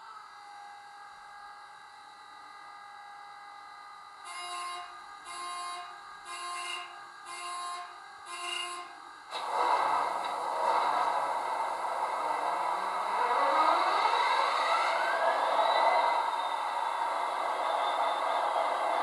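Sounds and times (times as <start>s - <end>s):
diesel engine sound starting up: 9.3s - 19.0s
rising whine: 9.3s - 19.0s.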